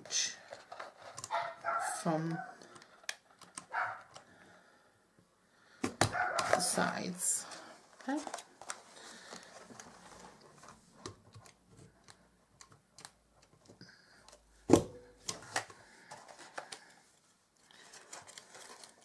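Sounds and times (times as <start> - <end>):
paper rustling: 0.1 - 1.9, 7.5 - 12.2, 15.3 - 19.0.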